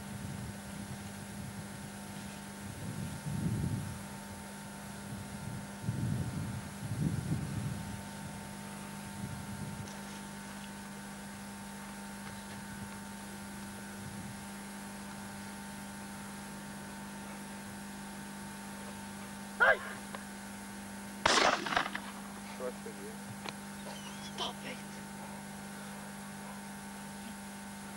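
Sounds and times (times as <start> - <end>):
electrical mains hum with hiss: 0.0 - 27.9
high-pitched cry: 19.6 - 20.0, 23.8 - 24.8.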